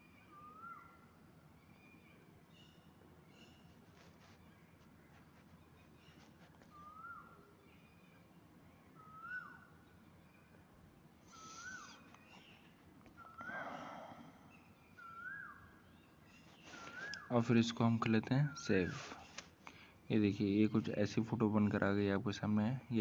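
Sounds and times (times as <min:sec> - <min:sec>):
bird whistled call: 0:00.2 - 0:01.0, 0:06.7 - 0:07.4, 0:09.0 - 0:09.7, 0:11.3 - 0:12.5, 0:15.0 - 0:15.7, 0:16.5 - 0:17.3.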